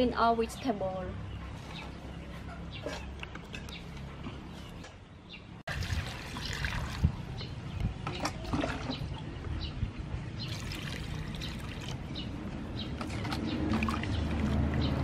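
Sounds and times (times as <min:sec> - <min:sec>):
birds chirping: 0:00.0 - 0:15.0
water pouring into a steel bowl: 0:05.7 - 0:07.2, 0:10.5 - 0:12.0.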